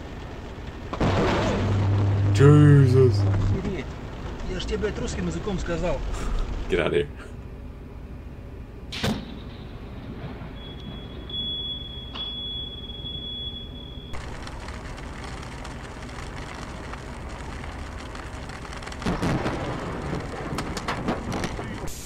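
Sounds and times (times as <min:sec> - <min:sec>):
lightning crack: 0:00.0 - 0:06.8, 0:14.2 - 0:22.0
car road and rain noise: 0:00.0 - 0:08.7, 0:14.1 - 0:22.0
thin high tone: 0:01.6 - 0:03.8.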